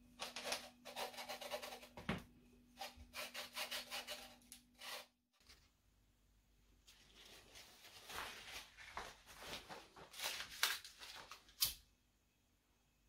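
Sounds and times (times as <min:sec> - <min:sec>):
rustling and scraping handling noise: 0:06.8 - 0:11.6.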